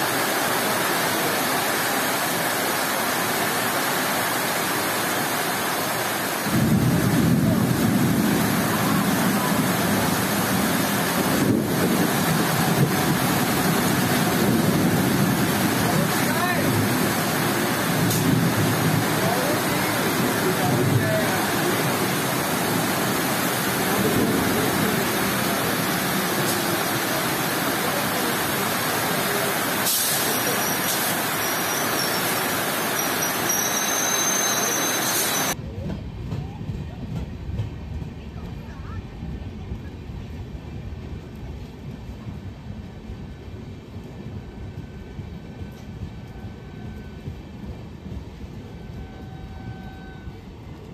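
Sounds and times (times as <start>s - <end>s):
heavy rain hissing: 0.0s - 35.6s
train rushing past: 0.0s - 50.9s.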